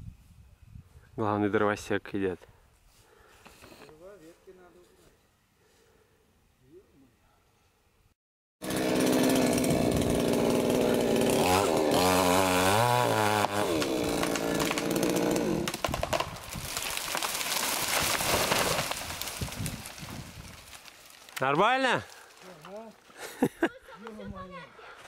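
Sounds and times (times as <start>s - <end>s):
chainsaw running: 8.6s - 16.0s.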